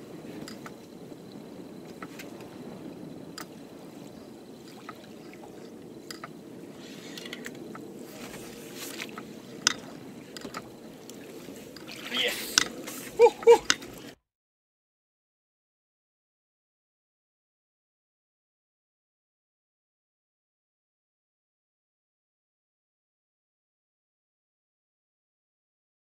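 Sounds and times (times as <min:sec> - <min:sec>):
waves lapping against boat hull: 0:00.0 - 0:14.2.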